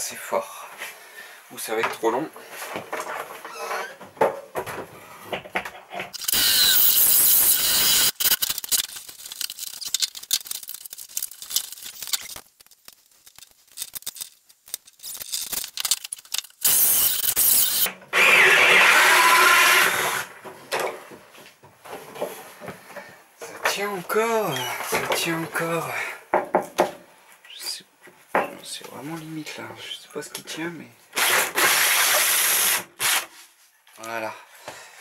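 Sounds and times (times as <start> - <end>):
scraping and clicks: 6.0 - 17.9
power tool squeal: 6.2 - 8.3
cordless power tool bursts: 6.2 - 8.4, 16.6 - 20.3, 31.2 - 33.3.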